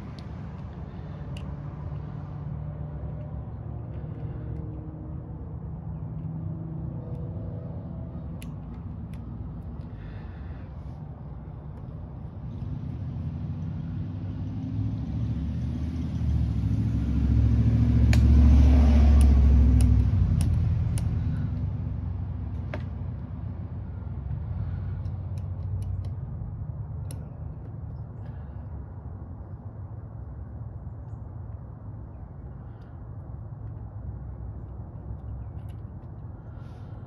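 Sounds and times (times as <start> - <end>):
vehicle engine rumbling: 0.0 - 37.0
small sharp clicks: 18.0 - 21.6, 25.0 - 26.4.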